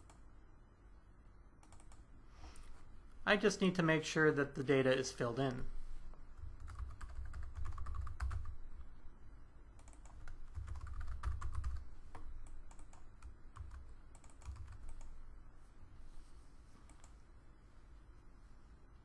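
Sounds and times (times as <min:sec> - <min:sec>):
typing on keyboard: 0:01.6 - 0:02.0, 0:06.5 - 0:08.6, 0:09.8 - 0:15.2.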